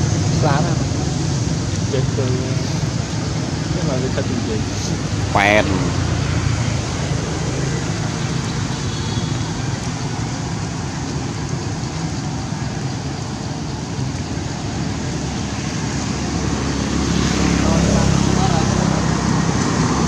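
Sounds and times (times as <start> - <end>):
steady rushing noise: 0.0 - 20.0.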